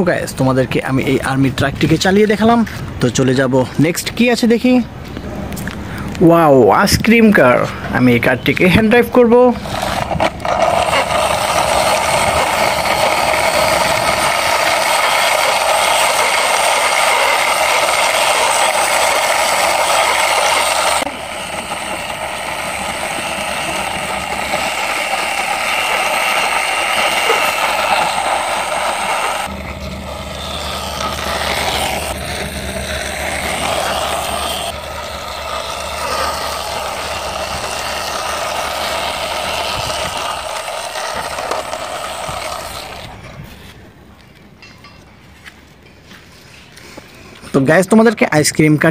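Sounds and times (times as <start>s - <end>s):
plastic toy car rolling rattle: 9.6s - 29.5s, 30.4s - 43.3s.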